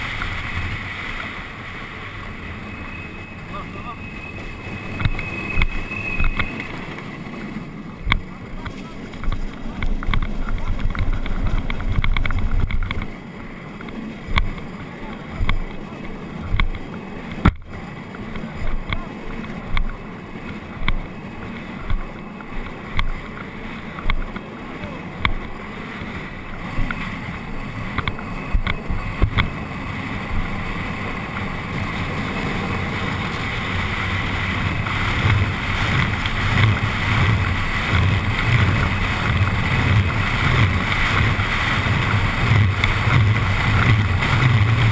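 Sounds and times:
small hard wheels rumbling: 0.0 - 44.9
wind and road noise rushing: 0.0 - 44.9
knocks and rattles over bumps: 5.0 - 13.2, 30.3 - 44.9.

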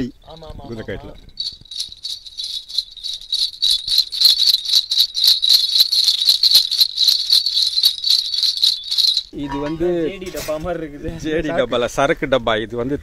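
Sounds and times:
horse bells jingling: 0.2 - 10.2.

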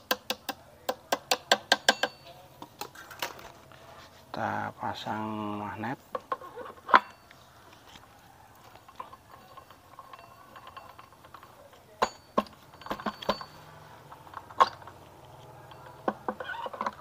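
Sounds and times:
metallic clinks and knocks: 1.1 - 3.4, 6.1 - 17.0.

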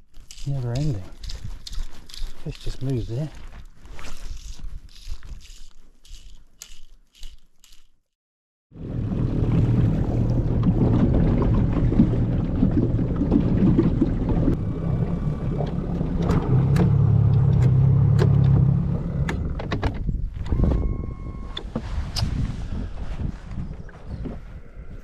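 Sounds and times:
wind: 0.0 - 8.1, 8.7 - 25.0
water noise: 8.8 - 17.8
outboard engine running: 8.8 - 19.6.

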